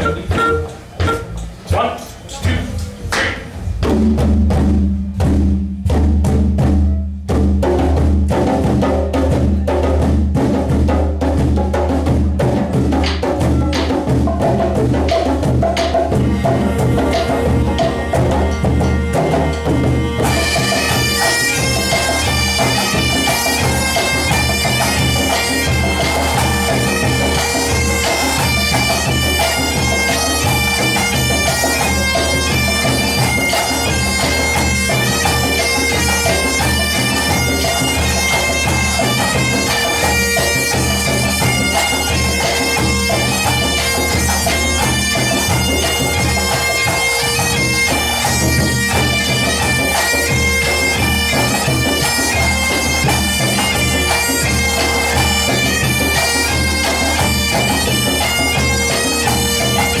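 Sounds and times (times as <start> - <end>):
drums keeping a beat: 0.0 - 60.0
bagpipes with drone: 16.1 - 60.0.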